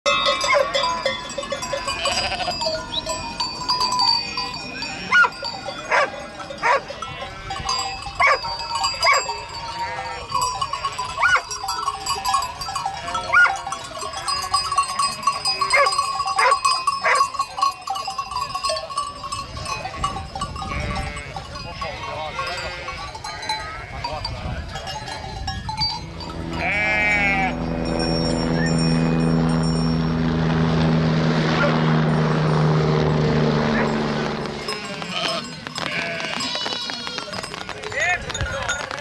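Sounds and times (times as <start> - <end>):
bells clanking and ringing: 0.0 - 39.0
sheep bleating: 1.8 - 2.8, 9.0 - 10.3, 20.7 - 21.5, 22.2 - 24.1, 26.5 - 27.9, 34.5 - 37.9.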